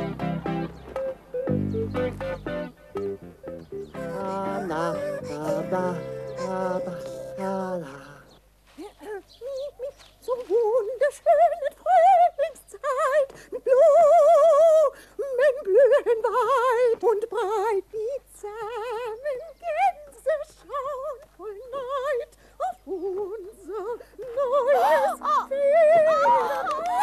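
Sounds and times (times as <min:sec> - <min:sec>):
second voice singing: 0:03.9 - 0:09.7
woman singing with wide vibrato: 0:04.0 - 0:27.0.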